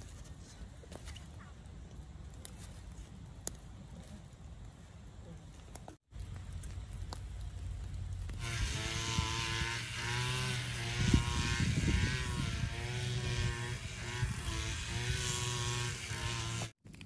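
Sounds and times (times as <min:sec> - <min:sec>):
small engine droning: 0:08.4 - 0:16.7.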